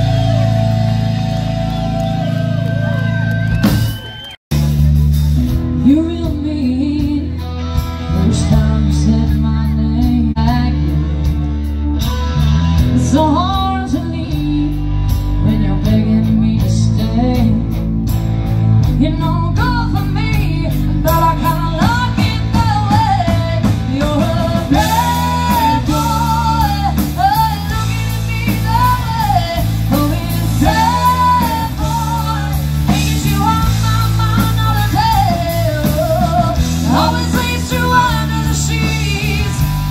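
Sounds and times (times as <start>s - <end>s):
rock band playing live: 0.0s - 39.9s
person singing: 19.0s - 39.9s.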